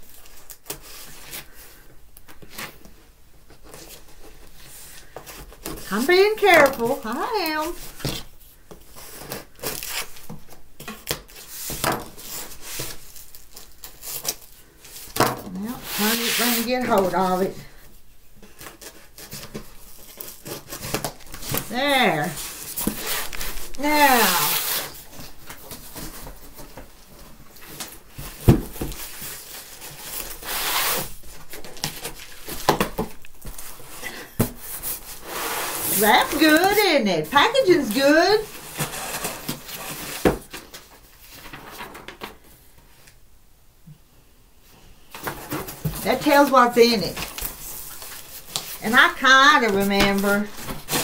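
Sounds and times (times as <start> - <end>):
cardboard flaps scraping: 15.1 - 17.4, 18.6 - 36.9.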